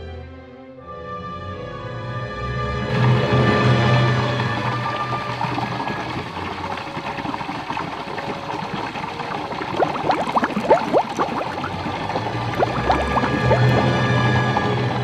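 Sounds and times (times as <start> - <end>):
water bubbling and gurgling: 3.6 - 15.0
rising plinks of bubbles: 4.2 - 15.0.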